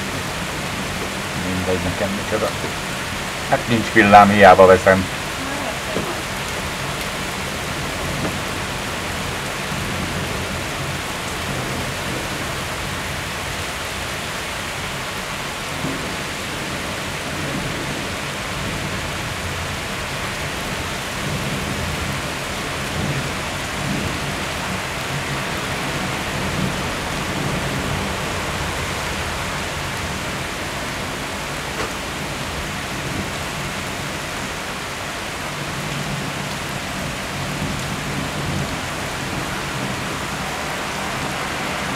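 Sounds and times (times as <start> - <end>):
heavy rain pouring: 0.0 - 41.9.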